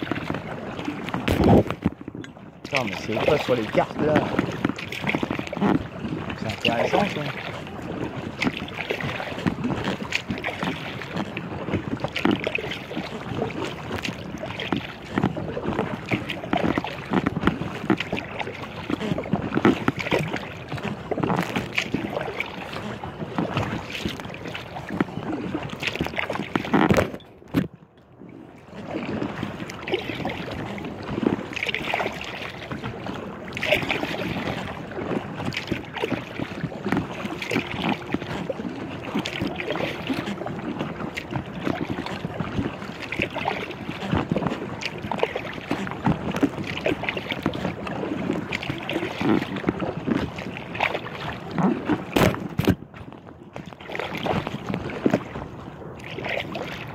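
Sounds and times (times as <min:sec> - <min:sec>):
wind noise: 0:00.0 - 0:27.8
water lapping against kayak hull: 0:00.0 - 0:56.9.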